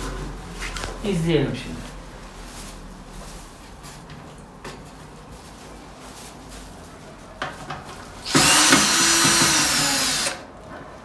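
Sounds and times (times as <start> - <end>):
small electric motor whirring: 8.2 - 10.4.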